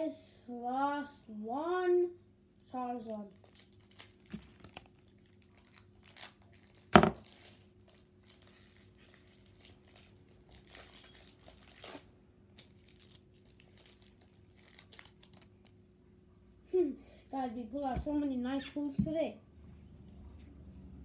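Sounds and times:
foil wrapper crinkling and tearing: 3.0 - 15.8.

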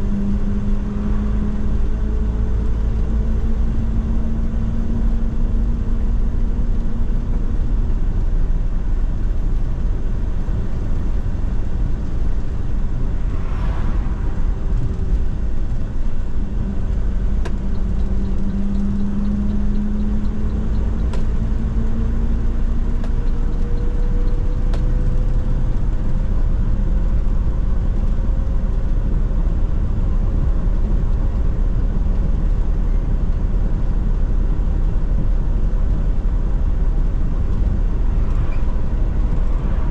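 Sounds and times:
bus engine running: 0.0 - 39.9
faint rising whine: 12.3 - 16.3, 37.0 - 39.9.

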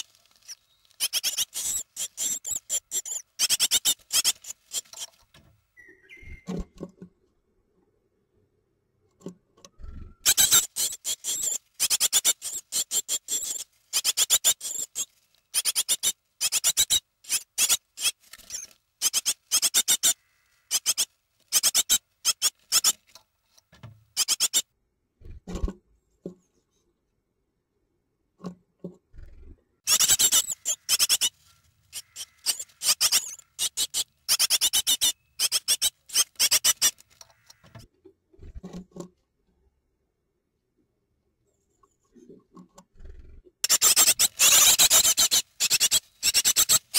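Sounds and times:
nestling birds begging calls: 0.0 - 5.2, 10.2 - 23.0, 29.9 - 37.7, 43.7 - 46.9.

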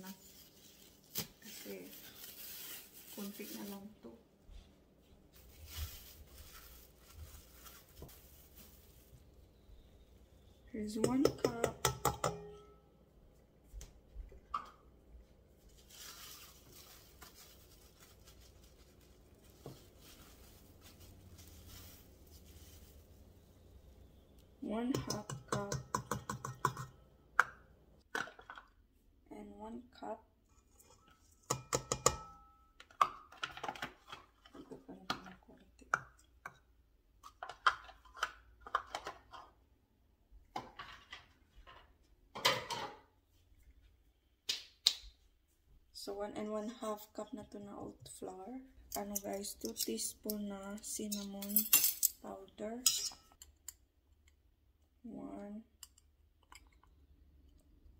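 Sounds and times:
flour scooped and poured: 5.3 - 9.2, 15.6 - 23.3
utensils clinking against mixing bowl: 52.8 - 53.5.

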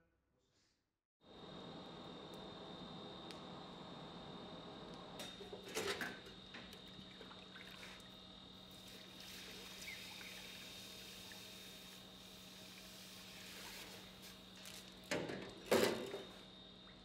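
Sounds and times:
water hissing on hot steel: 8.7 - 14.9.

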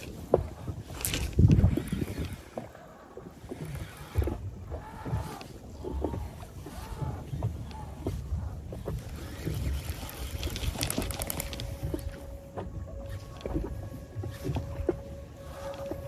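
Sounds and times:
water sloshing against boat hull: 0.0 - 16.0
wind rumble on microphone: 0.0 - 16.0.

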